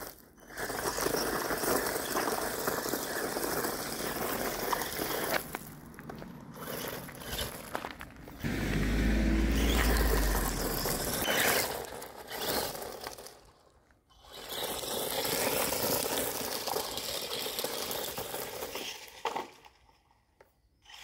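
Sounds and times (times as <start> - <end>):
rc truck driving over gravel: 0.0 - 21.0.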